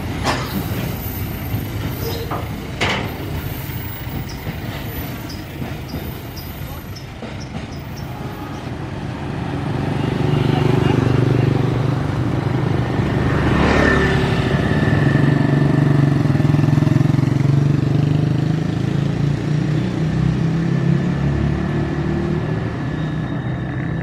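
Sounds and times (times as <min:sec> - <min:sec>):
motorcycles passing: 0:08.7 - 0:22.9.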